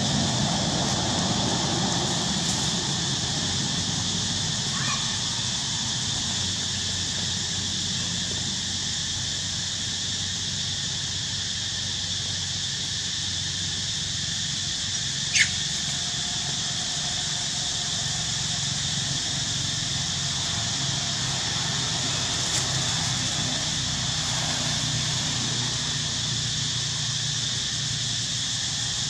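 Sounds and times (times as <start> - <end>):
faint monkey cry: 4.6 - 6.0, 15.2 - 16.4
monkey squealing: 15.3 - 15.7.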